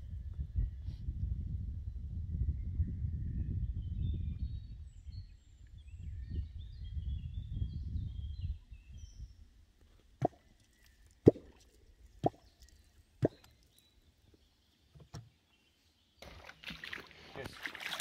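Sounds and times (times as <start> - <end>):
sharp plops in water: 13.2 - 13.5, 16.2 - 18.0.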